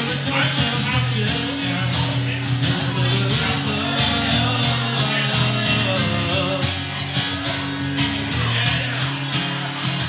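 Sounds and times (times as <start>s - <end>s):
man singing: 0.0s - 6.9s
acoustic guitar strumming: 0.0s - 10.0s.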